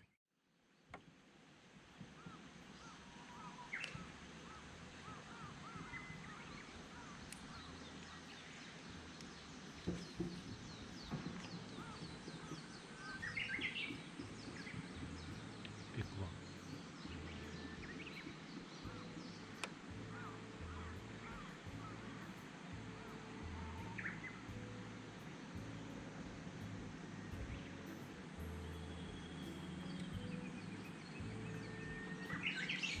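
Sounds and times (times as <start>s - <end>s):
warbler song: 1.9s - 33.0s
birds chirping and whistling: 5.3s - 24.8s, 27.3s - 33.0s
faint knocks: 9.8s - 13.3s.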